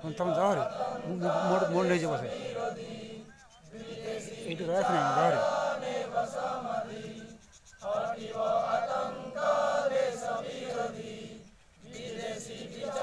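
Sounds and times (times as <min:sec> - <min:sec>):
men chanting a group song: 0:00.0 - 0:13.0.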